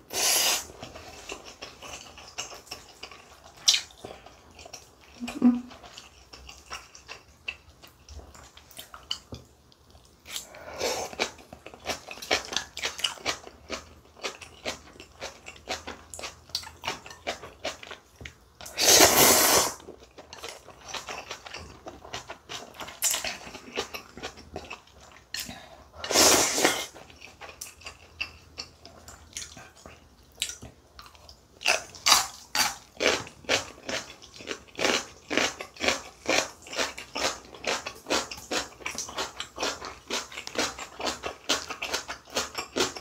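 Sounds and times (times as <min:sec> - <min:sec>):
slurping noodles: 0:00.1 - 0:01.1, 0:18.7 - 0:19.8, 0:26.0 - 0:27.0
chewing and crunching: 0:00.7 - 0:18.7, 0:19.8 - 0:25.8, 0:26.9 - 0:43.0
slurping broth from a spoon: 0:26.0 - 0:26.9.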